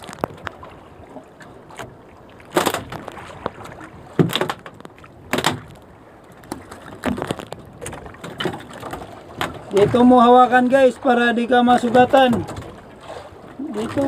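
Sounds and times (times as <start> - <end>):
fish thrashing against boat hull: 2.5 - 5.8, 6.4 - 10.1.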